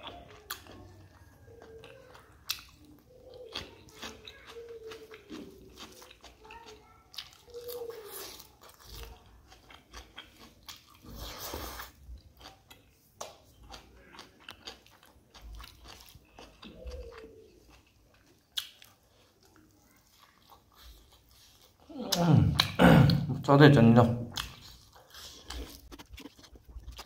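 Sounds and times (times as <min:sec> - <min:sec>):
chewing and mouth clicks: 0:00.0 - 0:22.8, 0:24.3 - 0:27.0.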